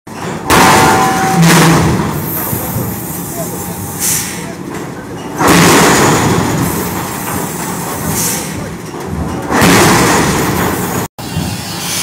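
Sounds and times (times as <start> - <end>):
forge machinery crashes: 0.1 - 2.9, 4.7 - 11.6.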